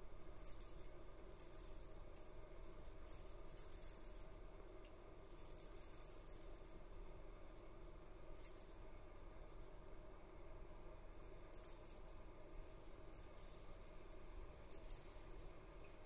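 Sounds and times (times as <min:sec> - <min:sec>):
low steady hum: 0:00.0 - 0:16.0
high-pitched chirring clicks: 0:00.4 - 0:06.6, 0:14.6 - 0:16.0.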